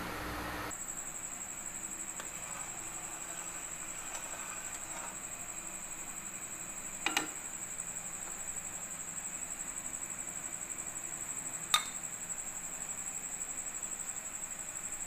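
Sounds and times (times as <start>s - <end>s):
steady high-pitched whine: 0.0s - 15.0s
utensils clinking on metal pot: 7.0s - 7.4s.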